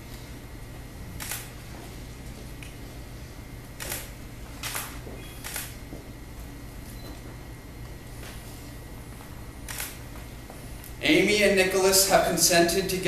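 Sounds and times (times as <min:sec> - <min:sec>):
steady low hum: 0:00.0 - 0:13.0
camera shutter clicks: 0:01.2 - 0:01.5, 0:03.8 - 0:05.8, 0:09.7 - 0:10.0.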